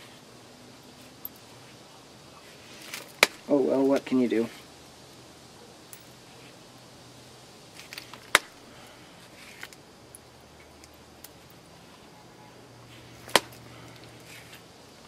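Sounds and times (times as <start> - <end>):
sharp clicks of stone flaking: 7.8 - 8.6, 13.2 - 14.6.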